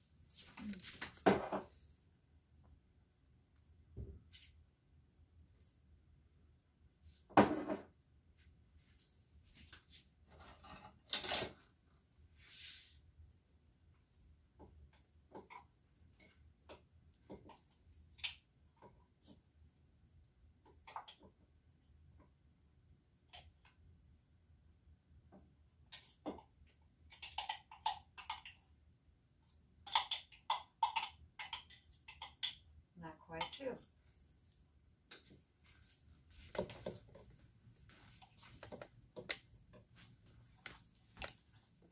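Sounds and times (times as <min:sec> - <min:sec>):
items rattling and clicking: 0:38.1 - 0:40.0.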